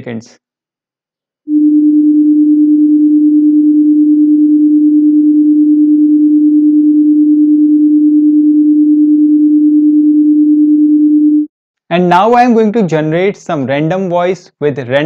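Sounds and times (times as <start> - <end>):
steady pure tone: 1.5 - 11.4.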